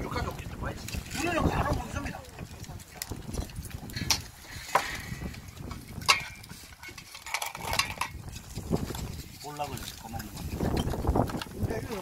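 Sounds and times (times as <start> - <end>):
tableware clinking and knocking: 3.4 - 8.4.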